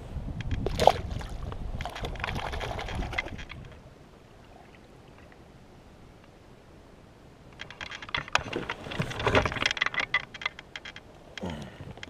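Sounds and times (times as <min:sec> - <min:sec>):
wind buffeting microphone: 0:00.0 - 0:03.9
water splashing: 0:00.6 - 0:03.8.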